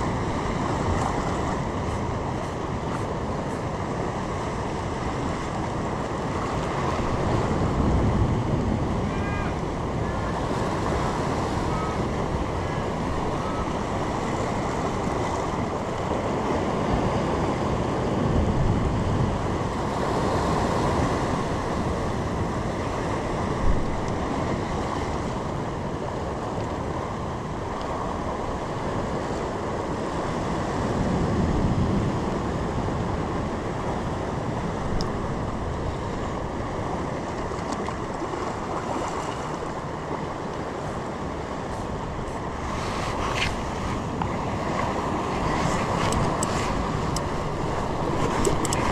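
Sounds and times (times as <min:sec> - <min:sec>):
sea surf washing: 0:00.0 - 0:48.9
wind buffeting microphone: 0:00.0 - 0:48.9.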